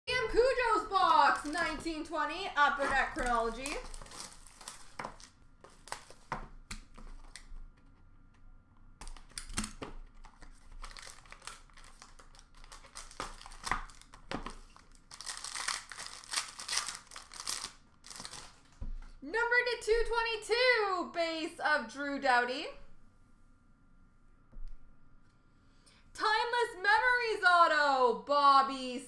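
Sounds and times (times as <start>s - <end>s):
plastic wrappers crinkling and tearing: 0.4s - 2.0s, 2.7s - 7.5s, 9.0s - 18.8s.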